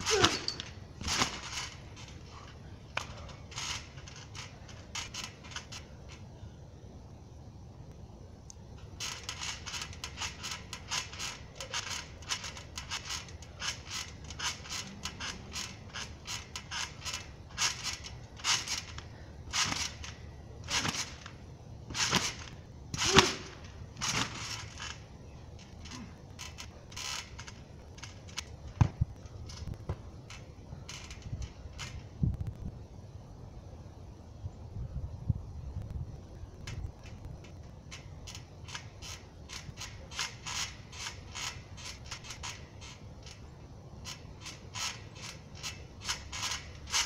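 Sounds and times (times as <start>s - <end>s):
trampoline springs creaking: 0.0s - 7.2s, 8.0s - 35.0s, 35.6s - 47.0s.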